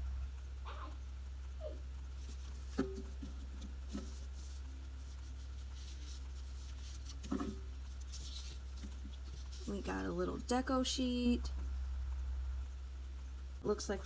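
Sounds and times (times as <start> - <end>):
steady low hum: 0.0 - 14.0
paper rustling: 2.1 - 10.0.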